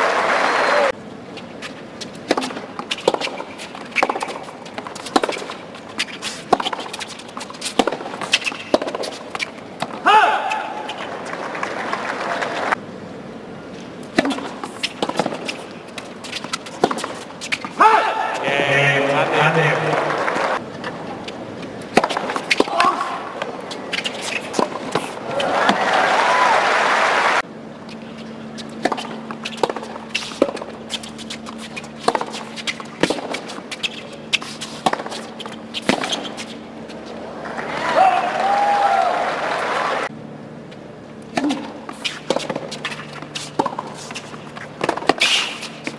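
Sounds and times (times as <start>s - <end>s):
crowd noise: 0.0s - 1.0s, 10.4s - 12.8s, 17.8s - 21.2s, 22.8s - 27.4s, 36.9s - 40.1s
tennis ball struck by racket: 2.2s - 10.7s, 14.1s - 15.6s, 21.9s - 25.8s, 34.4s - 36.5s, 41.3s - 45.9s
tennis ball bouncing on court: 2.2s - 11.4s, 14.0s - 18.4s, 21.8s - 25.8s, 28.8s - 36.5s, 41.3s - 45.9s.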